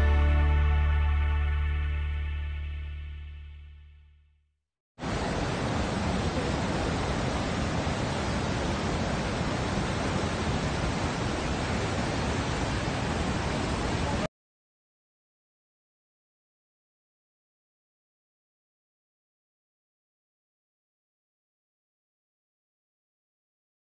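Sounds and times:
waterfall rushing: 5.0 - 14.3.

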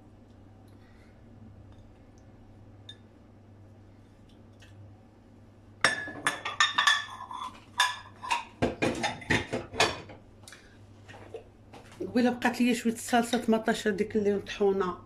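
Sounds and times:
dishes clinking: 5.8 - 10.2.

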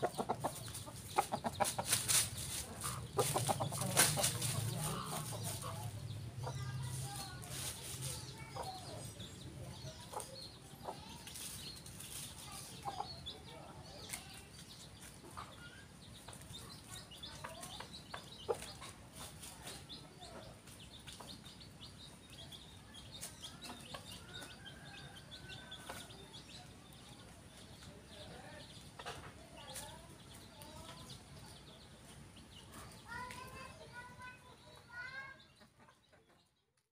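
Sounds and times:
rooster clucking: 0.0 - 6.7.

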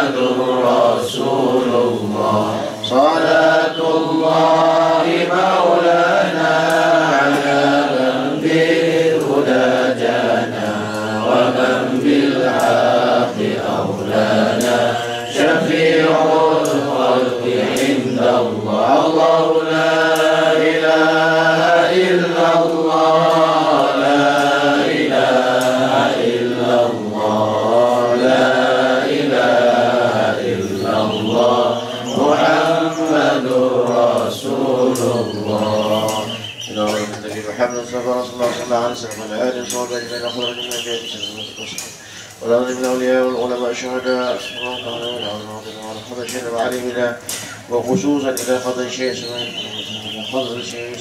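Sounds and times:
men chanting in unison: 0.0 - 51.0.

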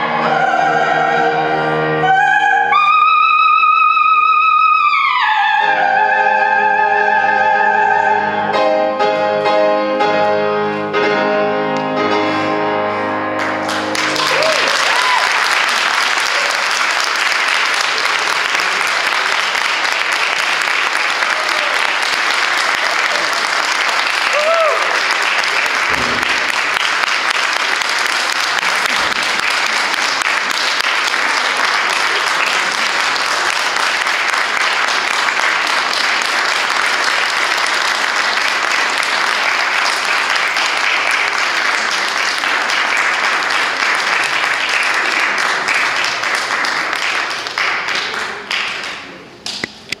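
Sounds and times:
audience applauding: 13.4 - 49.6.

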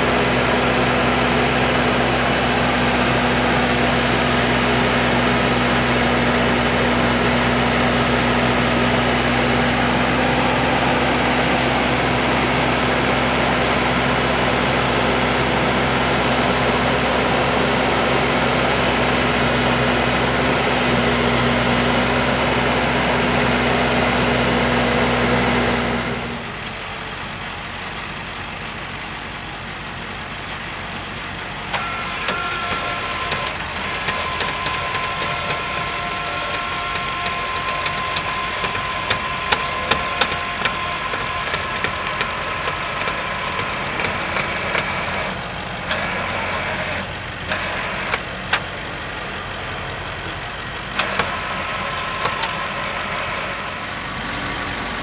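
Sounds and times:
diesel engine idling: 0.0 - 55.0.

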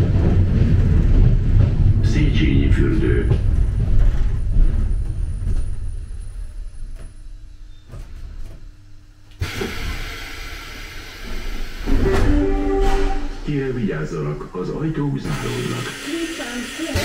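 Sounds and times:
train running rumble: 0.0 - 17.0
compressed air hiss: 15.3 - 17.0.

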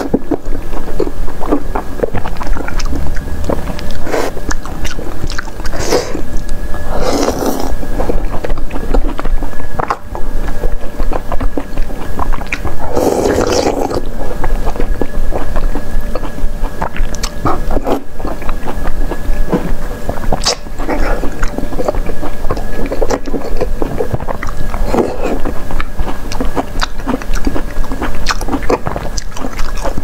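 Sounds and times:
wet chewing: 0.0 - 30.0
slurping food: 6.9 - 7.8, 12.8 - 14.1.

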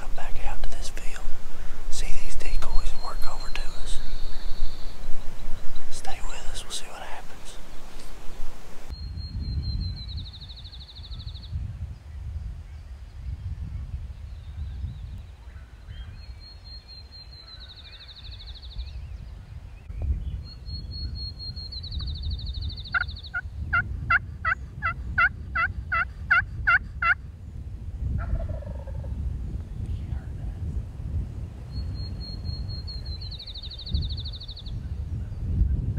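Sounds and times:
wind rumbling on microphone: 0.0 - 35.9
songbird trilling song: 1.9 - 23.8, 31.6 - 35.7.

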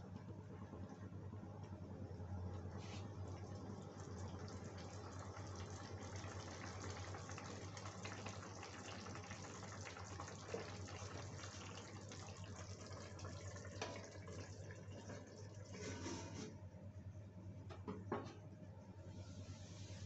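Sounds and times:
gravy bubbling and crackling: 0.4 - 16.4.

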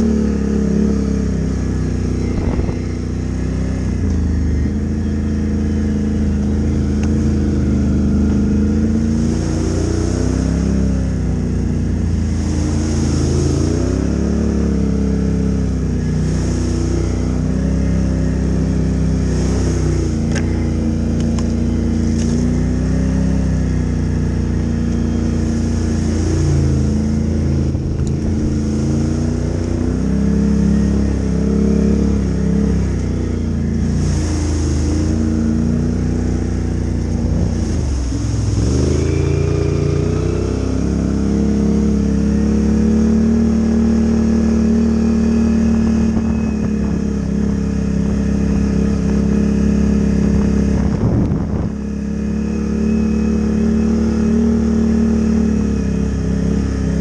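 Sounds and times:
atv engine revving under load: 0.0 - 57.0.

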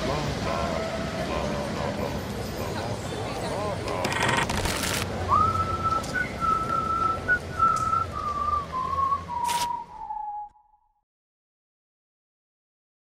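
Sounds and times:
person whistling a tune: 5.3 - 11.0.

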